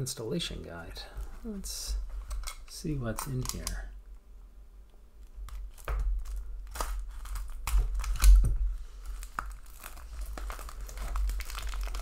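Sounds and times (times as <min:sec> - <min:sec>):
shrink-wrap crinkling and tearing: 0:05.5 - 0:12.0.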